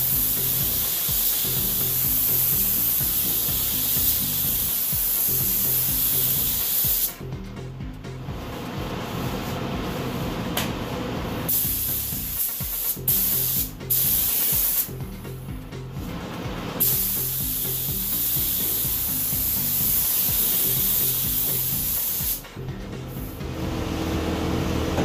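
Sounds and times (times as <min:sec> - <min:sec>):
paint spray gun hissing: 0:00.0 - 0:07.2, 0:11.5 - 0:15.0, 0:16.8 - 0:22.5.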